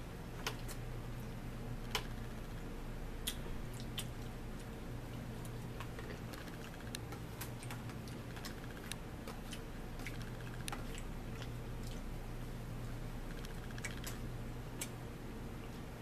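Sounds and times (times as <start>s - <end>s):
steady low hum: 0.0s - 16.0s
chewing: 3.2s - 12.1s, 13.3s - 15.0s.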